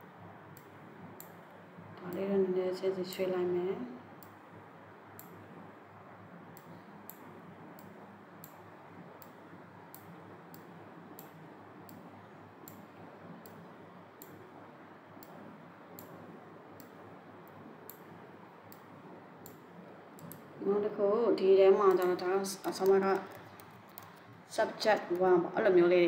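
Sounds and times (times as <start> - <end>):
faint computer mouse clicks: 21.9 - 24.2.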